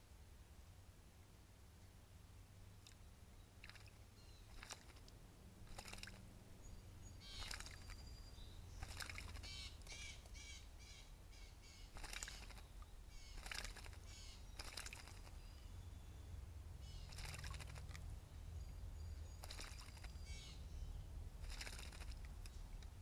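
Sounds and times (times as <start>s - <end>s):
bird splashing in water: 3.6s - 6.3s, 7.2s - 10.4s, 11.8s - 15.5s, 17.0s - 18.1s, 19.4s - 20.3s, 21.3s - 22.9s.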